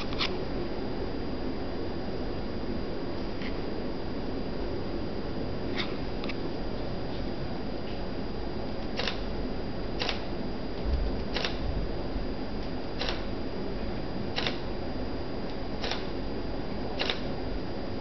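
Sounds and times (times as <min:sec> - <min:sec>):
camera autofocus whirring: 0:00.0 - 0:00.4, 0:05.7 - 0:06.5, 0:08.8 - 0:09.3, 0:10.0 - 0:11.7, 0:12.6 - 0:13.4, 0:14.3 - 0:14.8, 0:15.5 - 0:16.2, 0:17.0 - 0:17.4.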